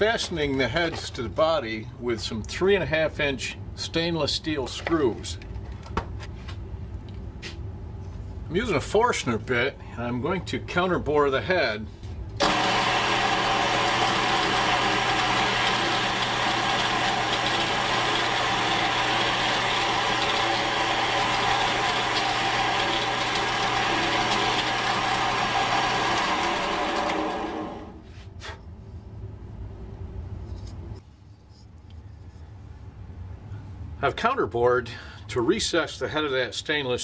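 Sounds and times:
drill press drilling wood: 0:12.4 - 0:27.9.

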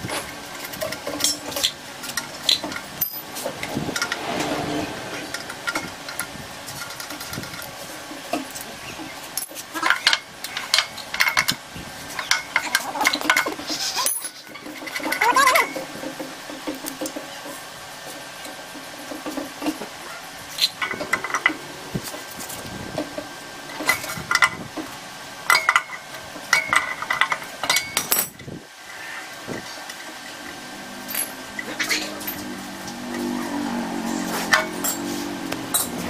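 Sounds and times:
metal fittings clinking and scraping: 0:00.1 - 0:04.5, 0:34.1 - 0:36.0.

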